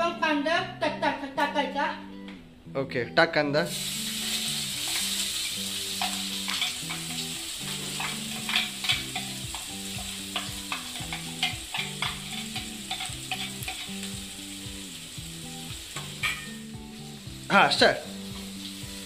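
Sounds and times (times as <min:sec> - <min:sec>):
onion sizzling in hot oil: 0:03.7 - 0:19.0
spatula scraping a pan: 0:04.2 - 0:14.3.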